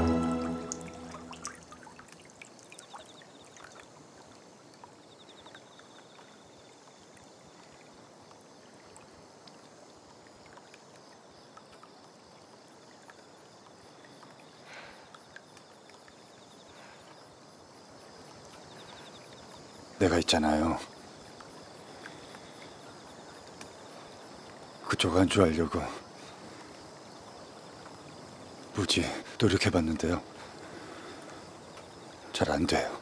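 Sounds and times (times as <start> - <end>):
water dripping and splashing: 0.0 - 25.1
crickets chirping: 0.0 - 33.0
quiet hiss: 0.0 - 33.0.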